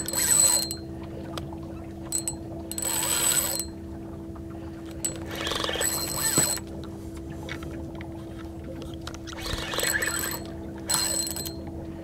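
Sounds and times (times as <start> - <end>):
fishing reel whirring: 0.0 - 0.8, 2.1 - 3.8, 4.9 - 6.7, 9.2 - 11.6
reel click: 0.0 - 0.8, 2.1 - 3.8, 4.8 - 6.7, 9.0 - 11.7
steady low hum: 0.0 - 12.0.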